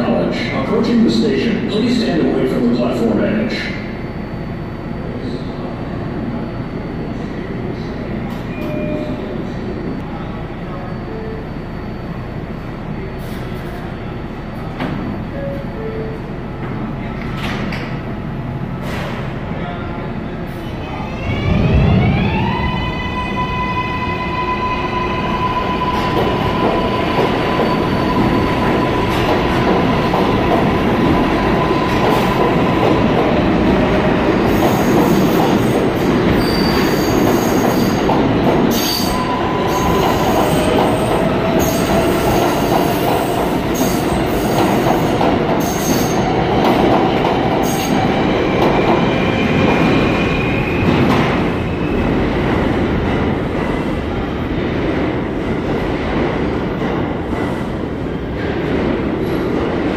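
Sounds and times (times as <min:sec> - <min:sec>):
subway train wheels rumbling: 0:00.0 - 0:59.9.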